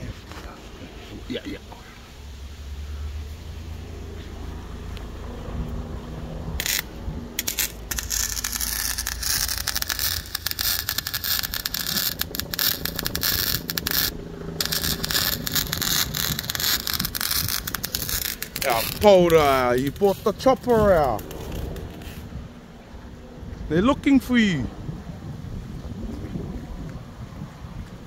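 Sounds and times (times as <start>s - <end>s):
electric arc welding crackle: 6.6s - 22.4s.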